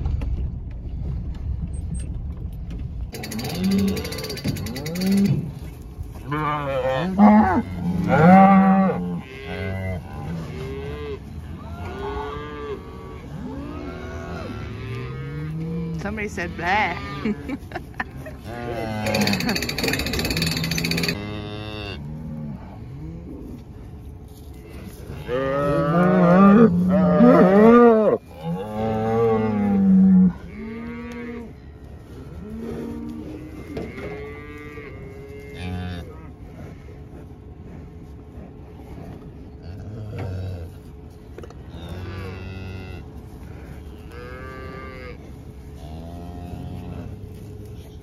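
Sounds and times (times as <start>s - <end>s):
steady low rumble: 0.0s - 3.4s, 36.0s - 44.2s
cattle mooing: 3.2s - 5.6s, 6.3s - 17.6s, 18.4s - 23.4s, 24.8s - 31.6s, 41.6s - 47.5s.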